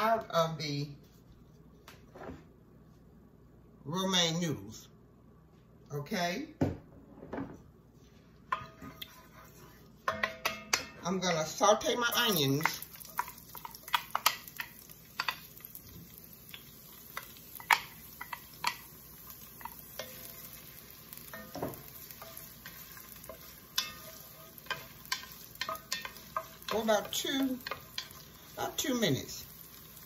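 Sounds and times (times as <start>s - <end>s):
onions sizzling in oil: 11.5s - 30.0s.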